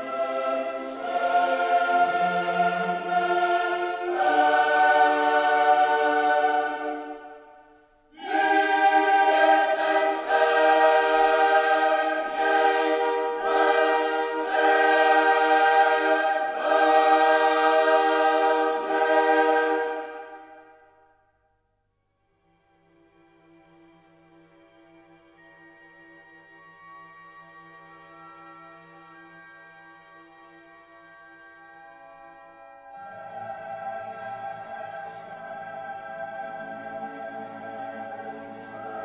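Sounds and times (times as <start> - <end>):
choir-like music chords: 0.0 - 21.2, 32.3 - 39.0.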